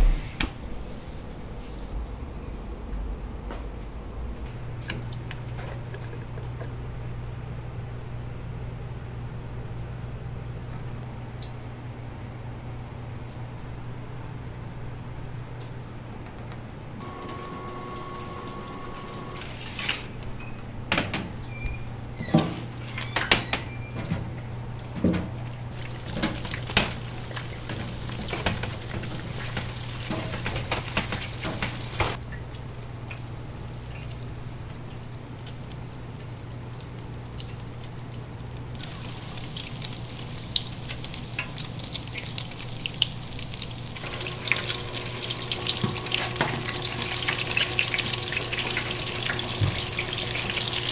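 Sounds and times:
steady low hum: 0.0 - 17.1
hissing with small crackles: 24.3 - 44.2.

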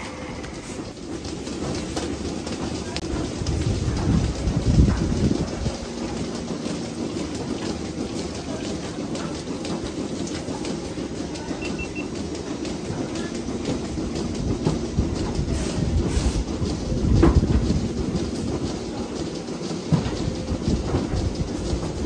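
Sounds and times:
milking machinery running: 0.0 - 22.0
faint short beeps: 11.6 - 12.1.

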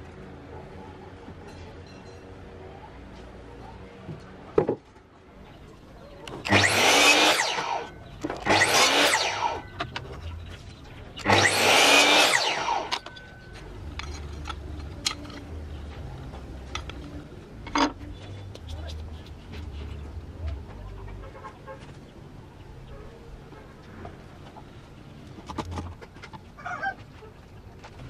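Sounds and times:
electric miter saw cutting wood: 6.5 - 10.0, 11.2 - 13.1.

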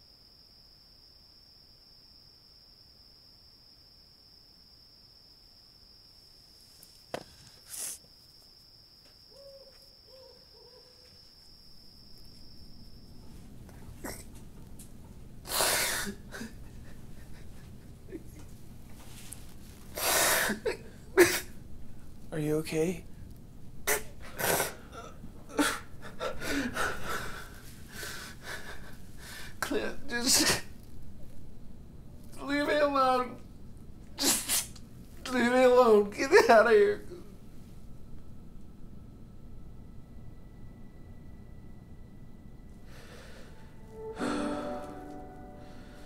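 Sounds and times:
crickets trilling: 0.0 - 44.1
man sobbing: 15.7 - 18.4, 24.9 - 29.0
breathy rush: 42.9 - 46.0.

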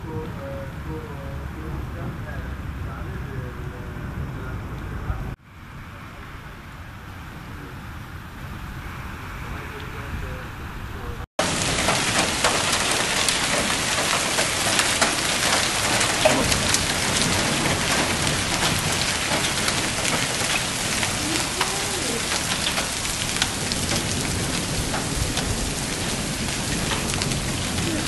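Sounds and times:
hailstones striking surfaces: 11.4 - 28.0
heavy rain and hail: 11.4 - 28.0.

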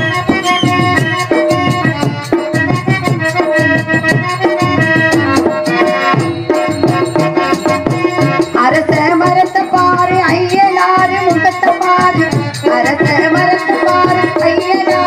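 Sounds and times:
harmonium held notes: 0.0 - 15.0
tabla playing quick rhythm: 0.0 - 15.0.

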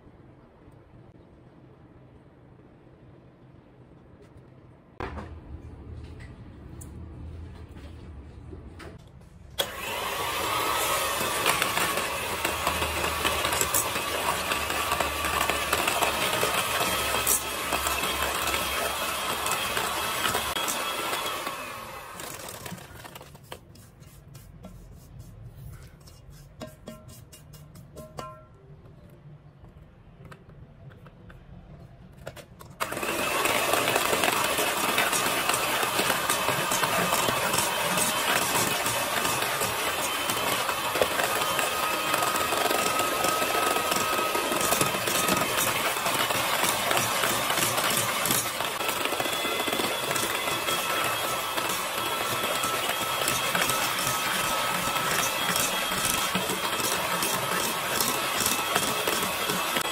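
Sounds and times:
electric hand mixer whirring: 9.6 - 23.5, 32.8 - 59.9.

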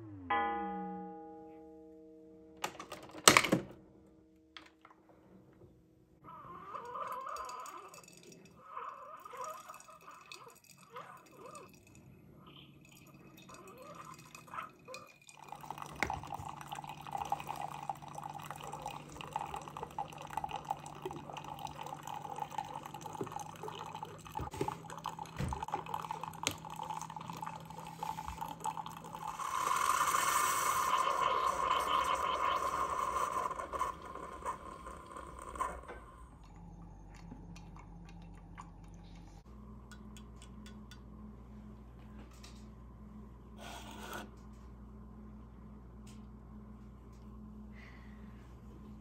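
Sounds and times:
coffee pouring into mug: 6.8 - 8.6, 9.2 - 12.1, 12.8 - 36.0
coffee maker humming: 12.5 - 49.0.

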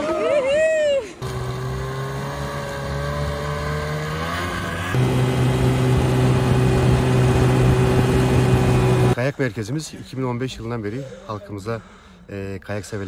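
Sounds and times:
snowmobile engine running: 1.2 - 9.2.

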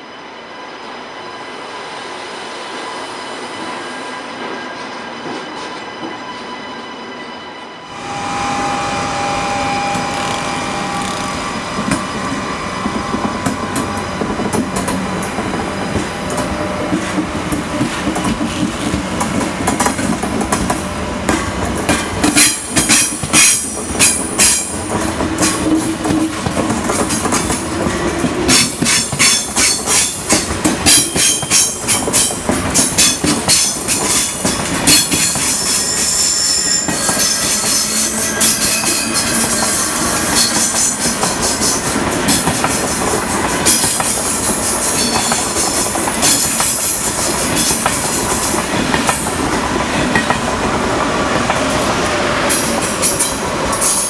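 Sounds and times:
train rumbling: 0.0 - 54.0
high wheel squeals: 6.2 - 17.1, 35.0 - 41.8
wheels clacking over rail joints: 9.8 - 36.2, 36.8 - 54.0.

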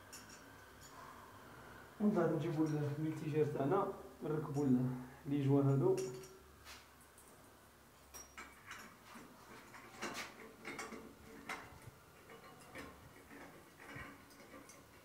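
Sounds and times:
clicks and light metal knocks: 0.0 - 1.1, 5.8 - 15.0.

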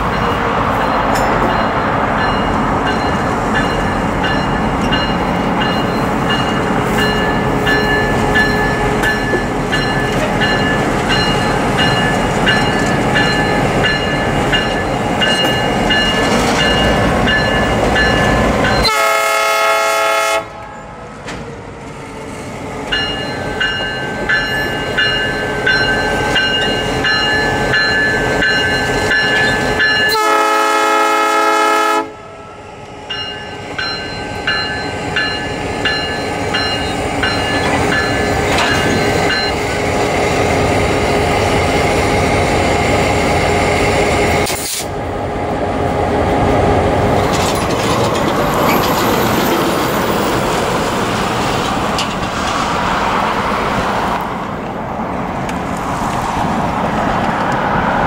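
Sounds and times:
train wheels clicking over rail joints: 0.1 - 18.9, 33.2 - 39.7, 44.4 - 44.9, 47.1 - 52.8
locomotive horn blasts: 18.8 - 20.7, 30.0 - 32.3.

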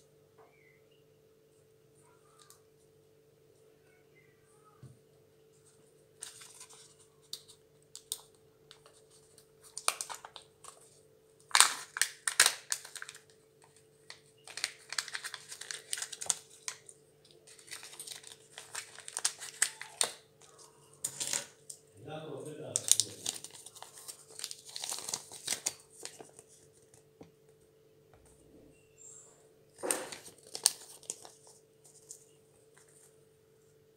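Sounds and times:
paper crinkling: 5.6 - 21.8, 22.6 - 27.2, 29.8 - 33.2.

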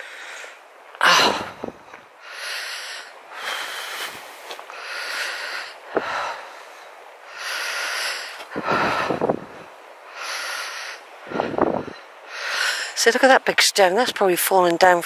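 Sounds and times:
man breathing heavily: 0.0 - 13.0
low bumps: 8.4 - 9.8, 11.2 - 12.0.

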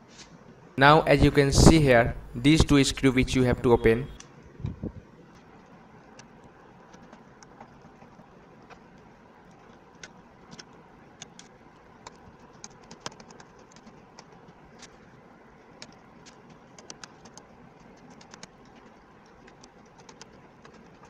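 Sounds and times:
steady low hiss: 0.0 - 12.6.

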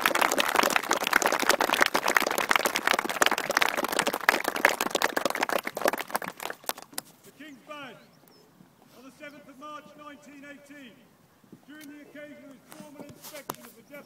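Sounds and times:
crowd applauding: 0.0 - 7.0
close hands clapping sharply: 0.0 - 7.1.

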